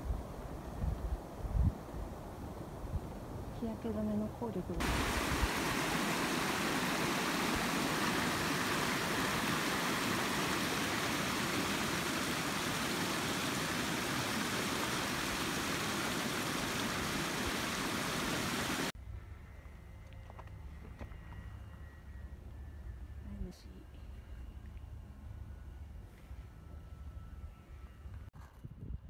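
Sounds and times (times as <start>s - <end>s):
stream running over rocks: 4.8s - 19.0s.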